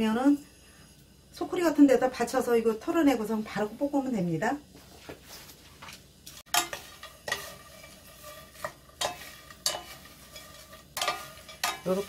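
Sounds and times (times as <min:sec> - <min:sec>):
wooden spatulas scraping a frying pan: 0:06.4 - 0:12.0.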